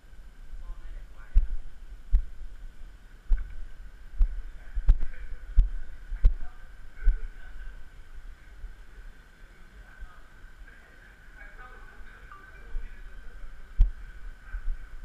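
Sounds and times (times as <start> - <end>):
faint high hum: 0.0 - 15.0.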